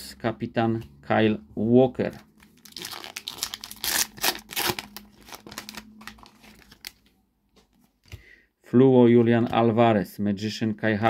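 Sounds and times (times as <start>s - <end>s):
wrapper tearing and crinkling: 2.4s - 7.0s.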